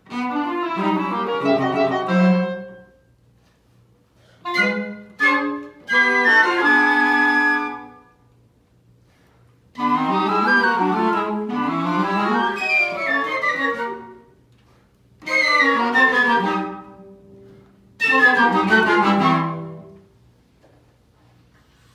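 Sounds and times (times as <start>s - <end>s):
chamber ensemble playing: 0.1s - 3.0s, 4.4s - 8.0s, 9.8s - 14.3s, 15.2s - 20.0s.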